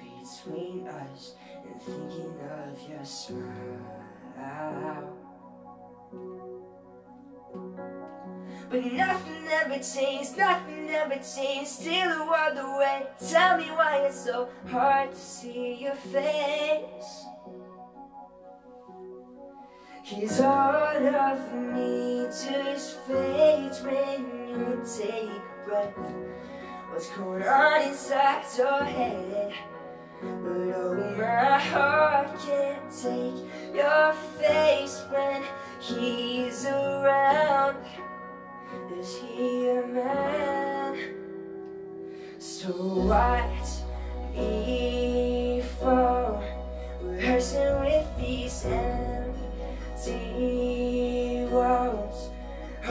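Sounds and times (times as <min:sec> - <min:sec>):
man singing: 0:00.0 - 0:05.3, 0:08.7 - 0:17.3, 0:20.1 - 0:26.2, 0:26.9 - 0:29.7, 0:30.3 - 0:38.0, 0:38.7 - 0:41.2, 0:42.4 - 0:52.9
keyboard chords: 0:00.0 - 0:52.9
deep bass note: 0:43.9 - 0:52.9.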